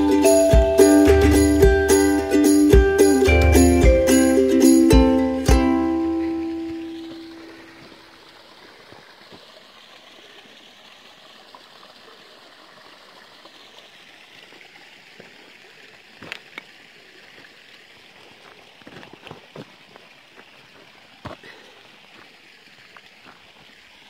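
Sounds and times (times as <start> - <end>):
water flowing over rocks: 0.0 - 24.0.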